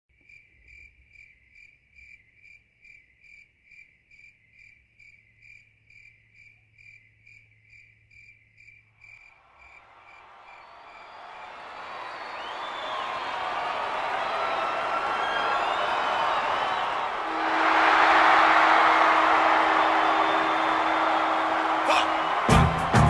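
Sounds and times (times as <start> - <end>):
cricket chirping: 0.1 - 10.7.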